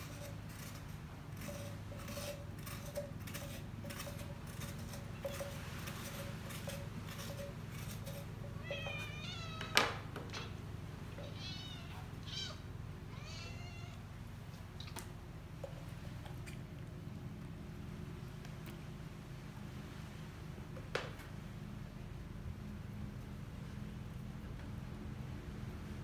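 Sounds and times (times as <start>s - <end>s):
light scratchy strokes on coconut: 0.0s - 9.2s
cat meowing: 8.6s - 9.7s, 11.2s - 14.0s.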